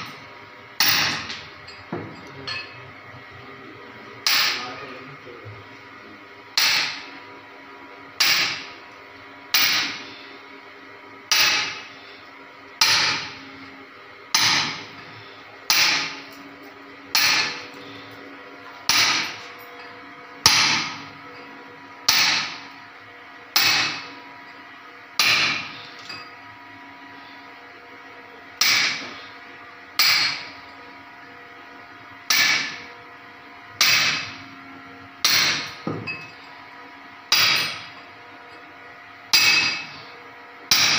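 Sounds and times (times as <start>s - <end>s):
hammer striking steel chisel: 0.8s - 1.4s, 4.2s - 4.6s, 6.6s - 7.0s, 8.2s - 8.6s, 9.5s - 10.0s, 11.3s - 11.8s, 12.8s - 13.2s, 14.3s - 14.8s, 15.7s - 16.2s, 17.1s - 17.6s, 18.9s - 19.4s, 22.1s - 22.6s, 23.6s - 24.0s, 25.2s - 26.2s, 28.6s - 29.1s, 30.0s - 30.5s, 32.3s - 32.8s, 33.8s - 34.4s, 35.2s - 36.3s, 37.3s - 37.9s, 39.3s - 40.0s, 40.7s - 40.9s.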